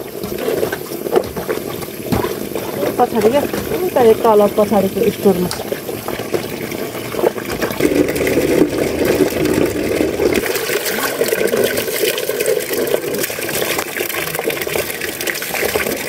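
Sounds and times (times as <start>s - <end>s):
steel pot being rinsed: 0.0s - 16.0s
water splashing into tub: 0.0s - 16.0s.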